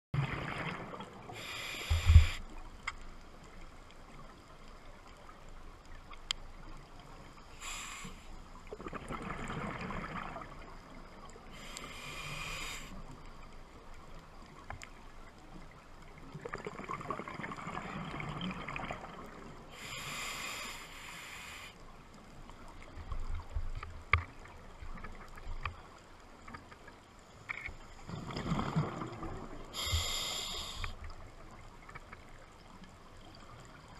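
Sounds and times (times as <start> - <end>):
gurgling exhaled bubbles: 0.2 - 1.3, 8.7 - 10.9, 16.3 - 19.5, 28.1 - 29.9
low underwater hush: 0.2 - 2.9
regulator hissing inhale: 1.3 - 2.6, 7.5 - 8.4, 11.5 - 13.1, 19.7 - 21.8, 29.7 - 31.1.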